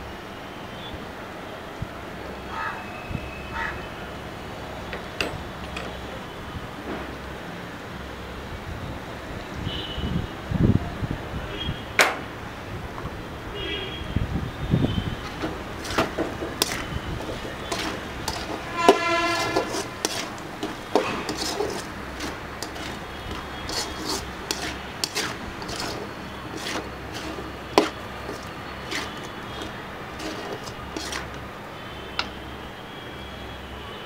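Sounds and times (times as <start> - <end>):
spatula scraping a metal pan: 15.2 - 31.4
horn-like tone: 18.4 - 20.0.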